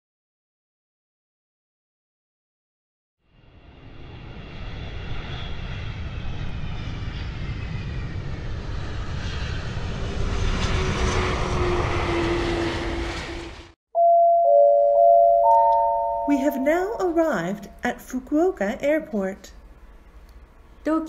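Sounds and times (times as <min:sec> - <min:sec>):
jet engines with falling whine: 0:03.3 - 0:13.7.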